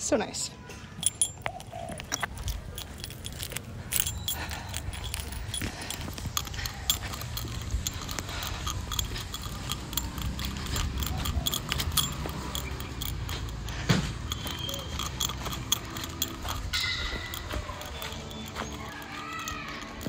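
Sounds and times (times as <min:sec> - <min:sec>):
small things jingling and clicking: 0:00.0 - 0:20.0.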